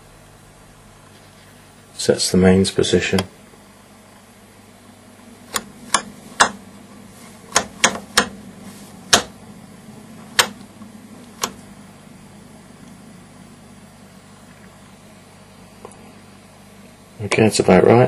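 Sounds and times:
faint steady hum: 0.0s - 18.0s
rotary switch clicking: 5.5s - 6.6s, 7.5s - 8.4s, 9.1s - 9.4s, 10.3s - 11.7s.

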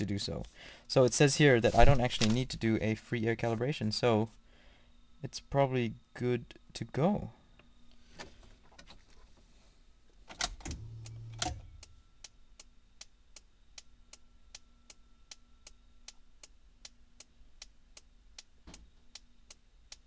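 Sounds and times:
short low hum: 10.6s - 12.1s.

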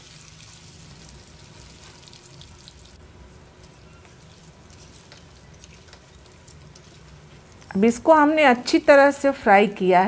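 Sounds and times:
food deep-frying in oil: 0.0s - 7.6s
small crackles: 3.6s - 7.8s.

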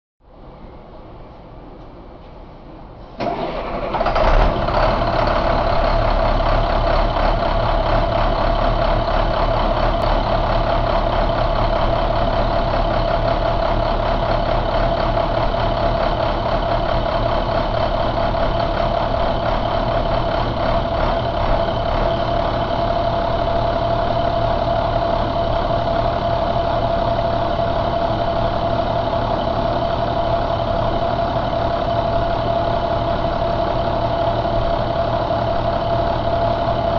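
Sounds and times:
constant whine: 0.3s - 36.9s
diesel engine starter cranking: 3.1s - 9.4s
diesel engine idling: 3.1s - 36.9s.

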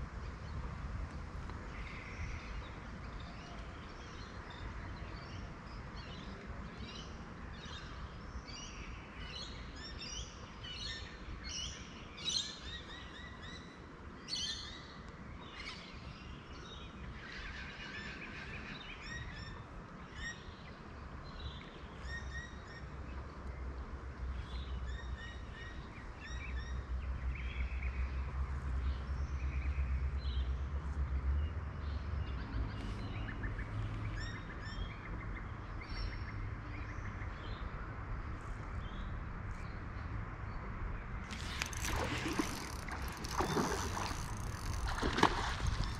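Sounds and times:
birds chirping: 41.2s - 45.9s.

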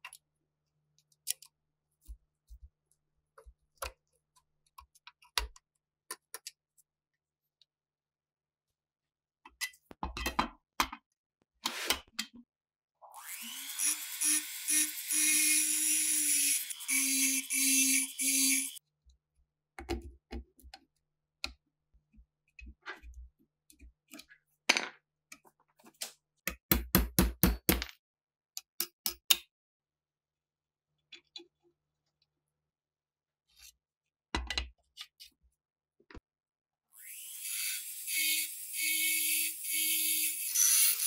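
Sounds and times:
small power tool running: 13.2s - 18.8s, 37.0s - 41.0s.

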